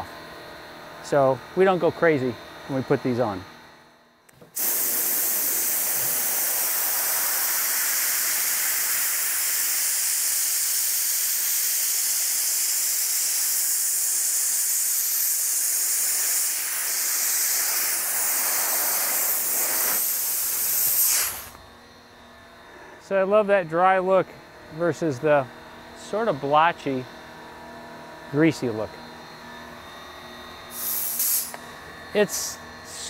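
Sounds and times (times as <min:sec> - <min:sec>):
dry ice blasting hiss: 0:04.4 - 0:21.6, 0:30.7 - 0:31.6.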